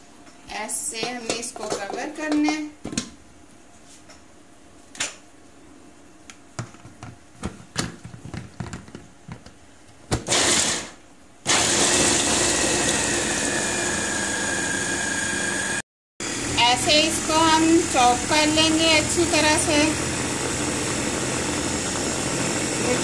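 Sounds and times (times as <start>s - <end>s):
electric chopper motor whining: 11.5s - 23.0s.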